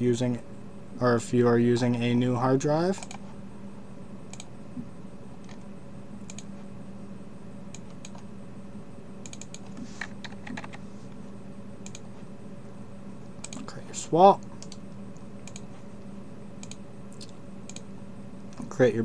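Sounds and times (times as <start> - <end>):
low hum: 0.0 - 19.0
keyboard keystrokes: 3.0 - 3.2, 9.2 - 10.8, 13.4 - 13.7
mouse clicks: 3.0 - 3.2, 6.3 - 6.5, 9.2 - 10.7, 11.8 - 12.0, 13.4 - 13.7, 14.6 - 15.7, 16.6 - 17.9.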